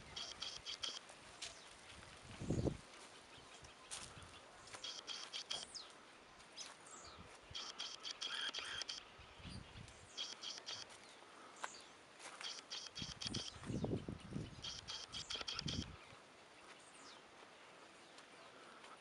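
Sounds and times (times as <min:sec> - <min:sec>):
high chirping: 0:00.0 - 0:01.0, 0:04.7 - 0:05.8, 0:06.6 - 0:11.0, 0:12.3 - 0:16.0
faint outdoor ambience: 0:00.0 - 0:19.0.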